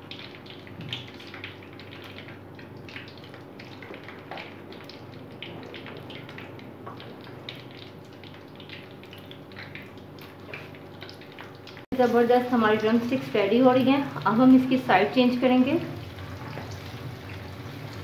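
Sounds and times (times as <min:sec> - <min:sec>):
chicken deep-frying in oil: 0:00.0 - 0:18.0
oil popping and crackling: 0:00.0 - 0:18.0.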